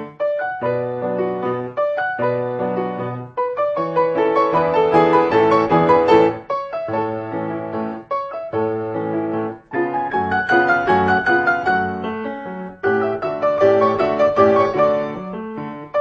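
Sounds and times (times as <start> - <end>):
solo piano music: 0.0 - 16.0.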